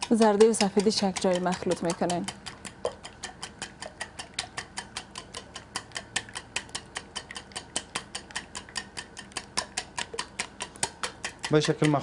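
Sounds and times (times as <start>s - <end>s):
whisk clicking against plastic bowl: 0.0s - 12.0s.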